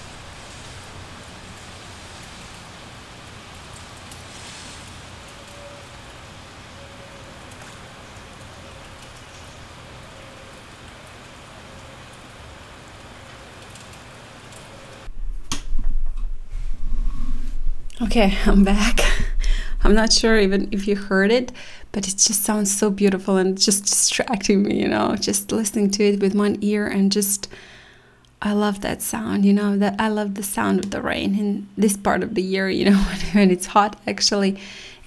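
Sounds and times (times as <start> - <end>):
steady rain: 0.0 - 15.1
microphone bumping and rumble: 15.1 - 21.3.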